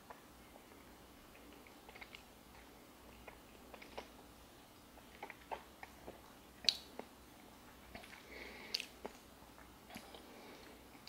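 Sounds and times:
mouth clicks and lip smacks: 1.3s - 4.2s, 4.9s - 10.3s.

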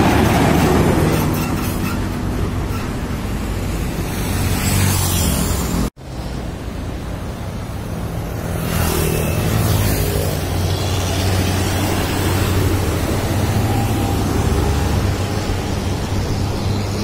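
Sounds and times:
moped passing: 8.0s - 17.0s
truck diesel engine drone: 9.3s - 17.0s.

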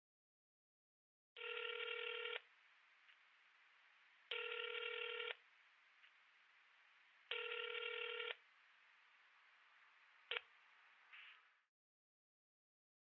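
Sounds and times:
telephone ringback tone: 1.4s - 2.4s, 4.3s - 5.4s, 7.3s - 8.4s.

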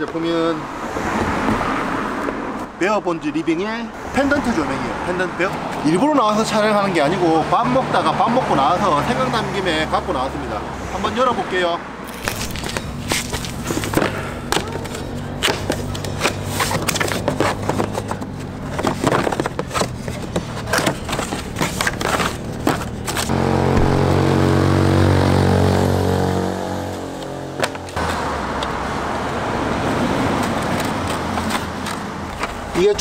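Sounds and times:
steady traffic noise: 0.0s - 33.0s
vehicle engine passing: 6.9s - 32.7s
cardboard packaging being opened: 12.1s - 23.3s.

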